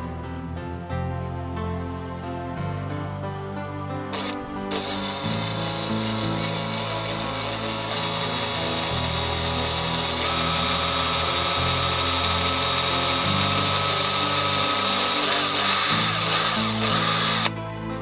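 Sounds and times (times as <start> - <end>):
background music: 0.0 - 18.0
electric drill boring plastic: 4.1 - 17.6
held whine: 4.1 - 17.6.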